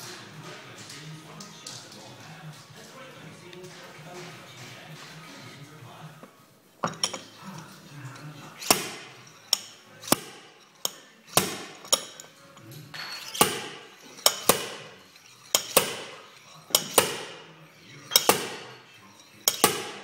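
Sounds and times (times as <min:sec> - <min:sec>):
slide hammer metal clacks: 0:06.8 - 0:20.0.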